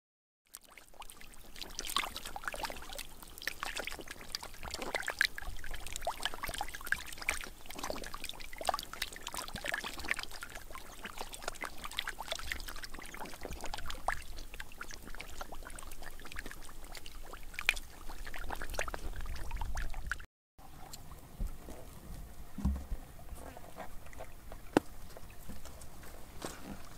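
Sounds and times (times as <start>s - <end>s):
fish splashing in water: 0.5s - 20.9s.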